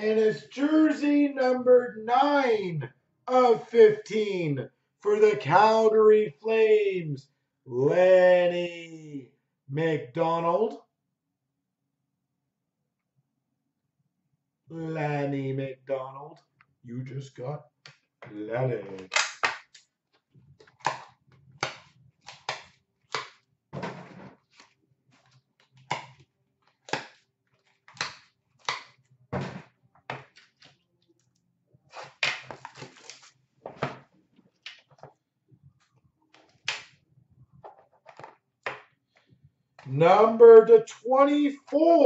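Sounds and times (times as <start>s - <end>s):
card packaging clicks and crinkles: 31.9s - 33.4s.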